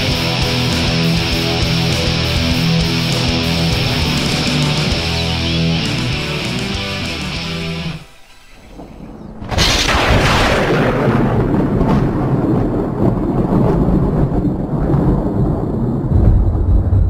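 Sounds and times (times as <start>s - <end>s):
thunder crack: 0.0s - 6.6s, 8.0s - 17.0s
low thunder rumble: 8.4s - 17.0s.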